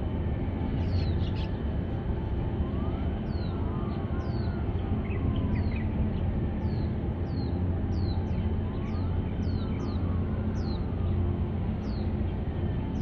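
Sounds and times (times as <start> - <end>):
deep steady rumble: 0.0 - 13.0
bird chirping: 6.6 - 10.9.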